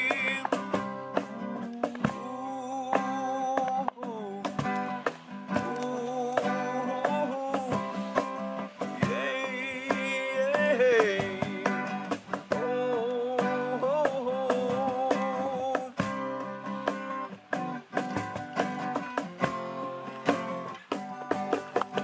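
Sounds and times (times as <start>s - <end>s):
man singing: 0.0s - 17.0s
acoustic guitar strumming: 0.0s - 22.0s.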